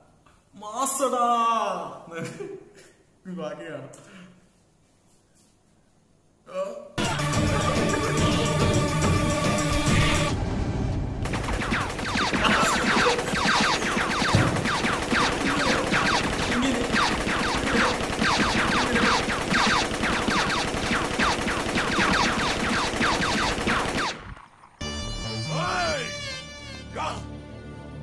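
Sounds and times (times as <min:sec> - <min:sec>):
rapid gunfire: 0:11.2 - 0:24.8.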